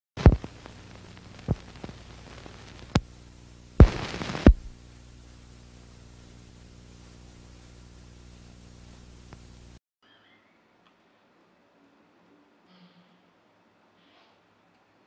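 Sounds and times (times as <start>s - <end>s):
film pops and crackles: 0.2s - 6.2s, 7.2s - 9.7s
low hum: 0.2s - 9.8s.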